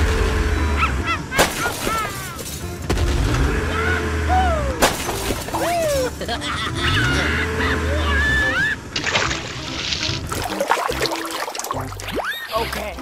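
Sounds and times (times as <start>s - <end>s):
cartoon crash smashes: 1.3s - 3.4s, 4.8s - 6.1s.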